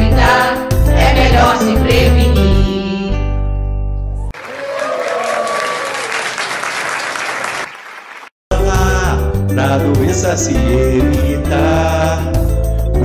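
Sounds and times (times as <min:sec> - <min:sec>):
audience applauding: 0:04.3 - 0:08.3.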